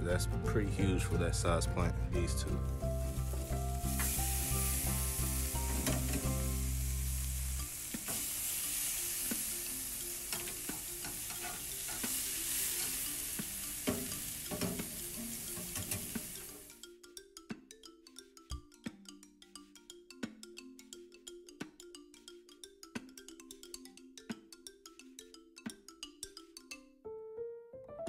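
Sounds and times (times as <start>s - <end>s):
low sustained music notes: 0.0s - 16.6s
meat sizzling on a grill: 2.7s - 16.7s
metal tongs clicking on grate: 10.3s - 12.2s, 13.8s - 16.4s.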